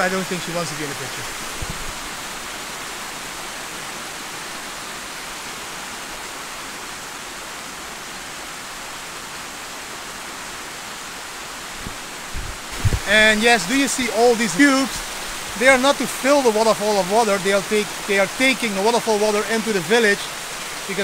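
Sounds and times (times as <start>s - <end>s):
waterfall rushing over rocks: 0.0s - 21.0s
dull low bumps: 11.8s - 13.4s.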